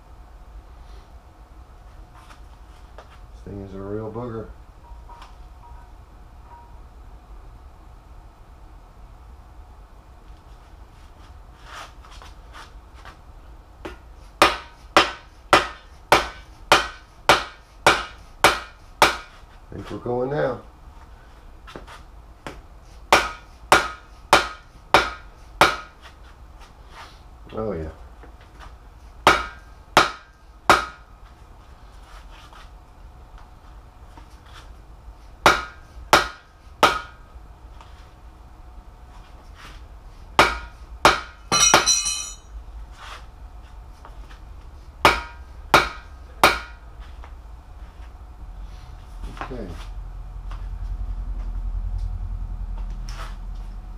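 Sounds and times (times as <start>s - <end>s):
metallic ring: 4.8s - 6.9s, 41.5s - 42.6s
hammer striking metal bar: 14.4s - 19.3s, 23.1s - 25.9s, 29.3s - 31.0s, 35.4s - 37.2s, 40.4s - 42.5s, 45.0s - 46.8s
hammer striking metal rod: 40.4s - 42.5s.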